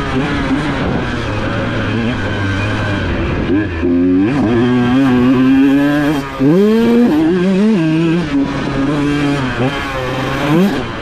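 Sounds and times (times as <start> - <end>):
motocross engine revving: 0.0 - 11.0.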